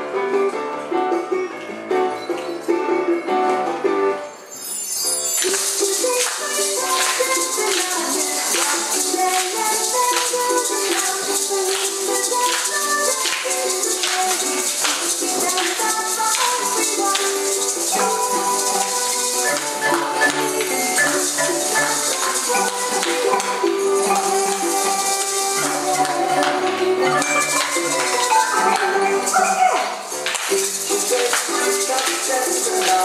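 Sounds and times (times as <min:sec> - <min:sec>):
shaker and rattle rhythm: 0:05.1 - 0:33.0
upbeat samba music: 0:05.1 - 0:33.0.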